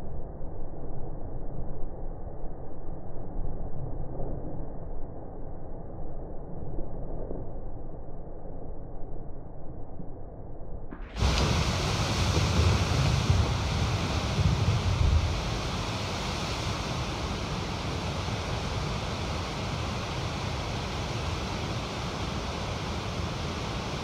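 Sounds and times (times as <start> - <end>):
low rumble: 0.0 - 24.0
river rapids rushing: 11.2 - 24.0.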